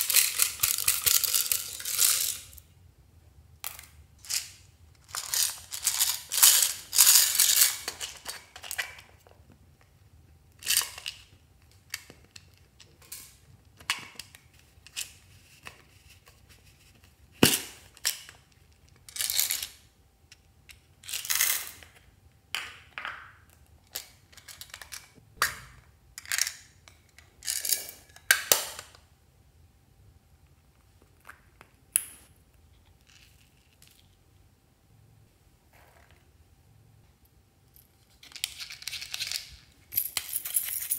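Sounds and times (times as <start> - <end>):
plastic charms rattling: 0.0 - 2.6, 4.2 - 8.3.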